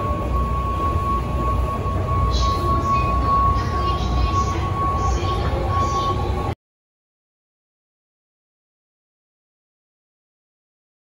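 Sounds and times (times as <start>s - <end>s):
constant high-pitched tone: 0.0s - 6.6s
low rumble: 0.0s - 6.6s.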